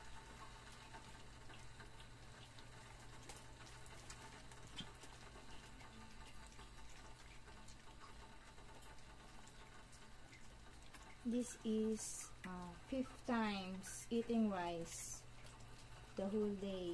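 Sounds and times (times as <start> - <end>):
dogs eating with wet smacking: 0.2 - 11.2.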